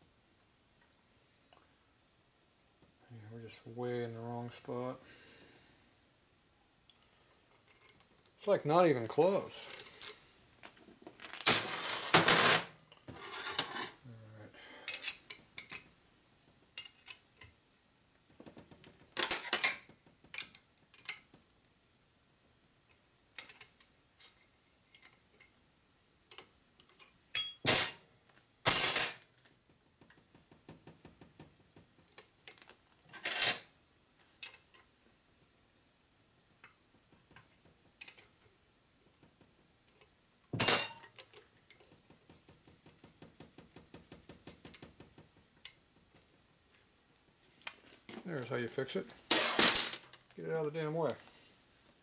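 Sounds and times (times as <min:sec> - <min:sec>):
metal tools clattering on workbench: 0:11.2 - 0:14.0, 0:19.2 - 0:21.2, 0:27.0 - 0:28.0, 0:28.7 - 0:29.3, 0:32.5 - 0:33.7, 0:40.6 - 0:41.9, 0:49.3 - 0:50.2.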